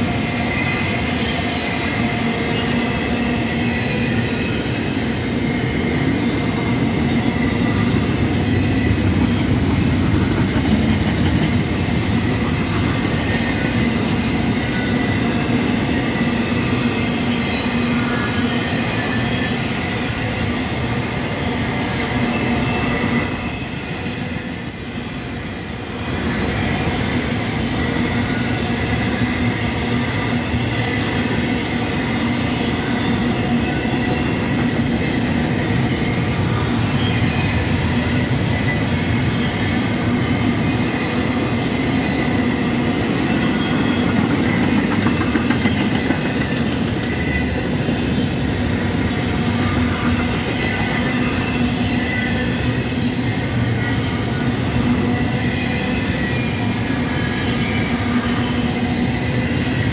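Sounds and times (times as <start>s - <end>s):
train wheels rumbling on rail: 0.0s - 59.9s
high wheel squeal: 26.0s - 59.9s.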